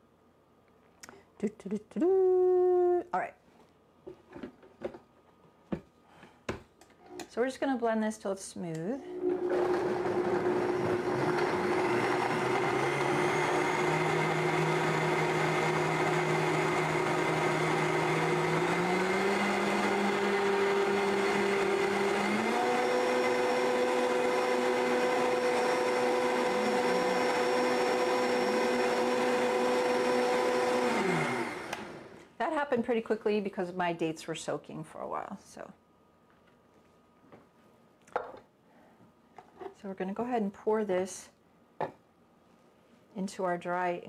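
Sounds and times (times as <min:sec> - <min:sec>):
blender running: 0:09.1 - 0:32.2.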